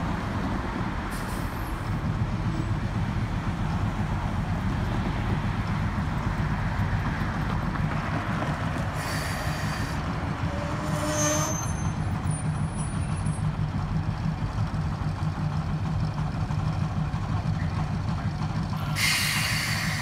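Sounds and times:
locomotive engine rumbling: 0.0 - 20.0
hiss with faint squealing: 9.0 - 10.0, 18.8 - 20.0.

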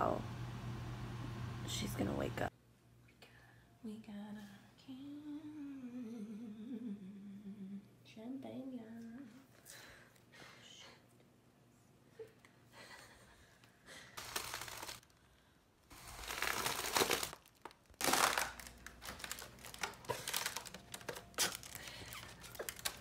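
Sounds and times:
foil balloon crinkling: 14.2 - 23.0.

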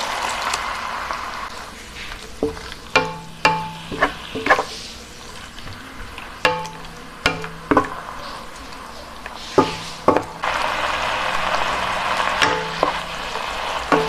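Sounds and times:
beef sizzling in wok: 0.0 - 14.0
wooden spatula knocking on wok: 2.4 - 4.7, 5.7 - 8.0, 9.6 - 10.4, 12.4 - 14.0.

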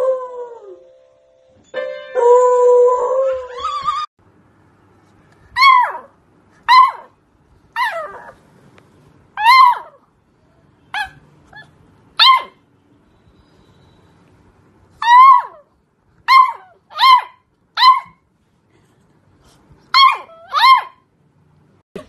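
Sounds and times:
puppy barking: 5.6 - 7.2, 10.9 - 12.6, 16.3 - 18.2, 19.9 - 21.0.

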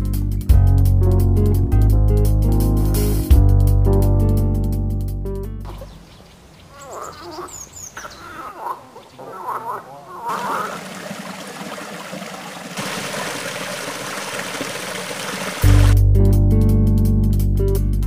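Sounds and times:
high bird chirps: 5.7 - 8.7
frogs croaking: 5.7 - 15.6
water pouring into a pool: 10.3 - 16.0.

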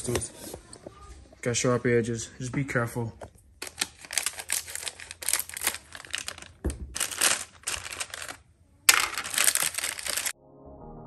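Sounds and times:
scissors cutting plastic: 3.6 - 10.3
plastic bag crinkling: 3.6 - 10.4.

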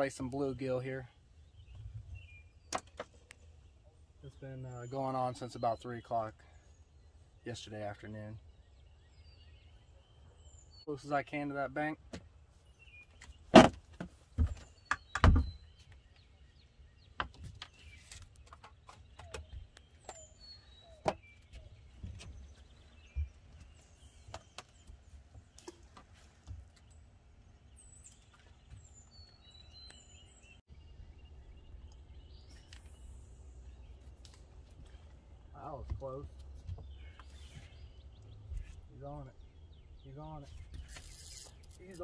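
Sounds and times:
birds chirping: 0.0 - 42.0
knocks and thumps on boat deck: 13.6 - 15.6.

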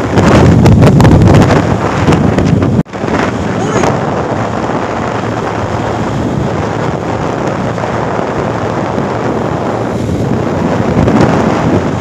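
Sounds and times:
road noise: 0.0 - 12.0
wind roaring over microphone: 0.0 - 12.0.

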